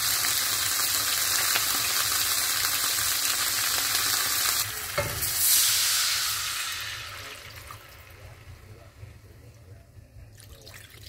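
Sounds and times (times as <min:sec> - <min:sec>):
chicken sizzling in hot oil: 0:00.0 - 0:08.7
liquid poured into pan: 0:00.6 - 0:08.8.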